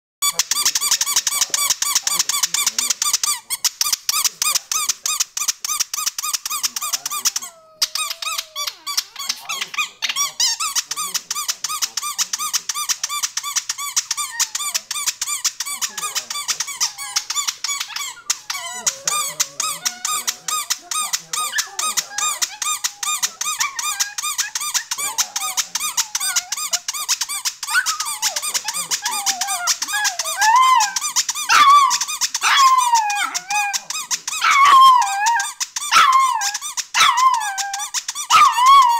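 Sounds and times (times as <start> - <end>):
rubber squeaky toy squeaking: 0.2 - 38.9
dog howling: 6.9 - 9.8, 15.9 - 26.8, 27.7 - 38.9.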